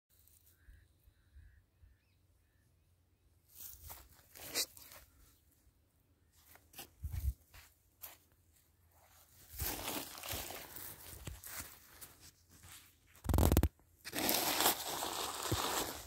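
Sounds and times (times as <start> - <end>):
rustling and crunching: 3.5 - 5.2, 8.9 - 16.0.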